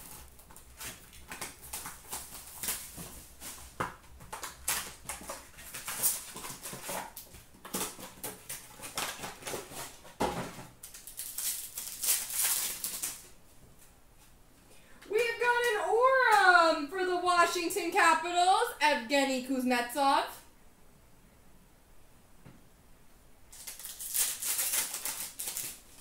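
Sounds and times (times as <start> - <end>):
foil pack tearing: 0.0 - 10.2, 10.8 - 13.3, 23.5 - 26.0
plastic wrap crackling: 0.0 - 13.4, 23.5 - 26.0.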